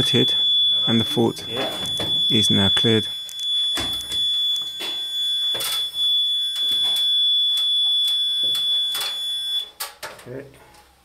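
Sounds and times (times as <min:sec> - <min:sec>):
alarm panel buzzer tone: 0:00.0 - 0:09.7.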